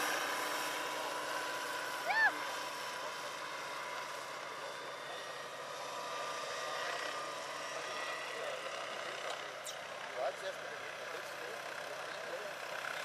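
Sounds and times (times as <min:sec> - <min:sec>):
electric motor whine: 0:00.0 - 0:10.0
helicopter rotor noise: 0:00.0 - 0:13.0.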